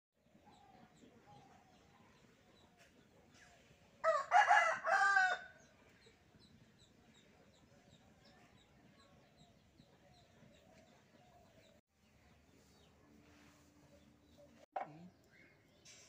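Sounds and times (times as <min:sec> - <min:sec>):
small birds chirping: 0:00.2 - 0:03.9, 0:05.6 - 0:16.0
rooster crowing: 0:04.0 - 0:05.6.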